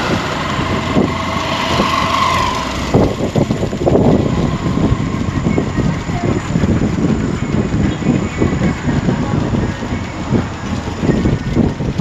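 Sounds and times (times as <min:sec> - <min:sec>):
motorcycle engine running: 0:00.0 - 0:12.0
wind and road noise: 0:00.0 - 0:12.0
wind buffeting microphone: 0:00.0 - 0:12.0.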